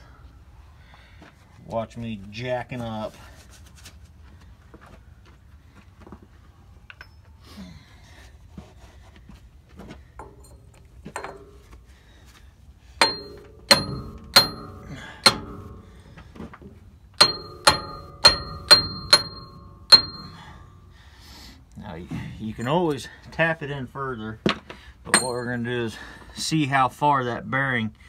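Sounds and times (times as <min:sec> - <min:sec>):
hammer striking steel pipe: 0:11.2 - 0:11.7, 0:13.0 - 0:16.1, 0:17.2 - 0:21.0, 0:25.2 - 0:25.5.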